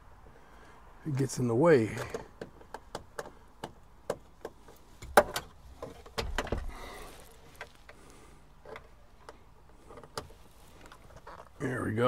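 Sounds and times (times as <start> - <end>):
light clicks and taps: 1.9 - 6.7.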